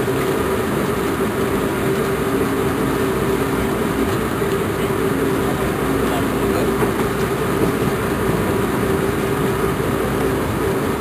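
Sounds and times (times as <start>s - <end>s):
boat engine humming: 0.0s - 11.0s.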